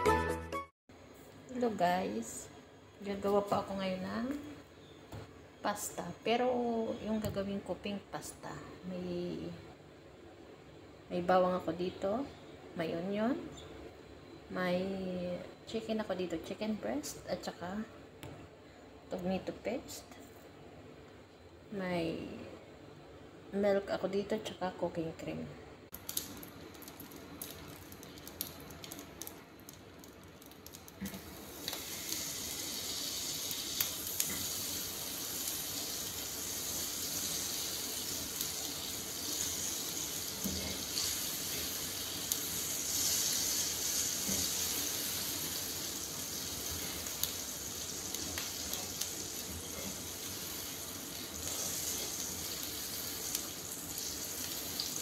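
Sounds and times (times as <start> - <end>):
butter sizzling in frying pan: 26.0 - 55.0.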